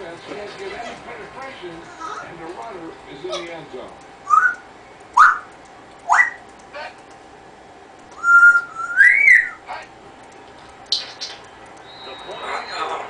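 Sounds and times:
parrot whistling: 4.2s - 6.4s, 8.2s - 9.6s, 10.9s - 13.0s.

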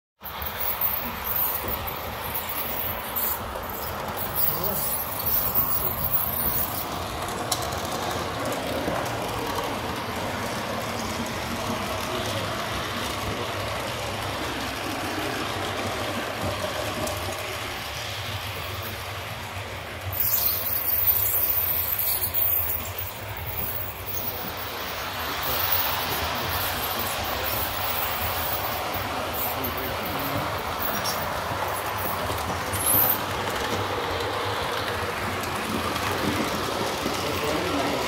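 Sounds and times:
model train wheels rolling on track: 0.2s - 38.0s
model train motor whirring: 0.3s - 11.0s, 20.0s - 38.0s.

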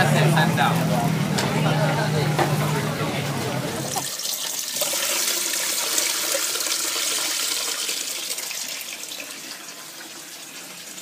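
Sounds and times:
water running into basin of rice: 3.9s - 11.0s.

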